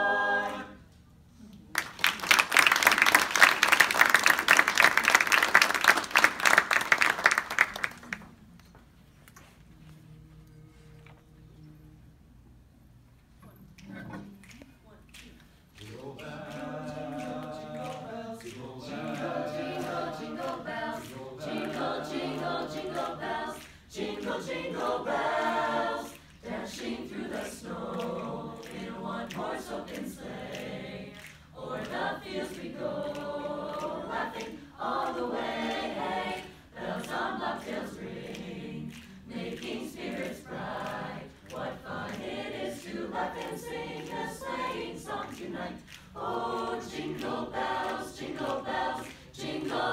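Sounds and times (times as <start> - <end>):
a cappella choir singing: 0.0 - 1.3, 15.7 - 49.9.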